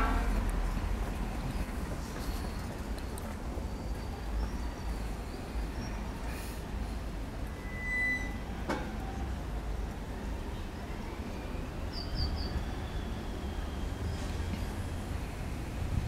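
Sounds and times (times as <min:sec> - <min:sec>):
faint whistle: 0:07.6 - 0:08.6, 0:10.9 - 0:14.8.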